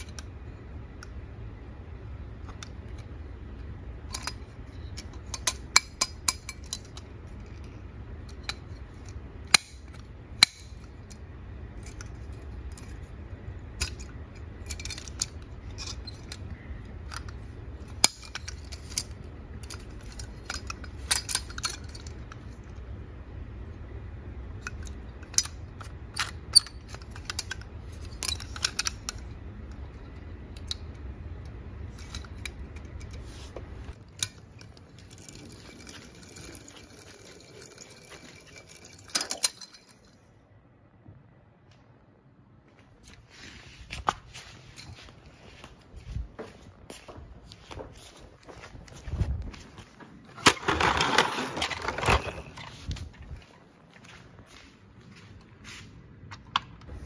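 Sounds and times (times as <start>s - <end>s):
low steady hum: 0.0s - 57.0s
toy truck clicking and clattering: 4.0s - 22.7s, 24.6s - 29.9s, 33.9s - 40.2s, 50.4s - 52.5s.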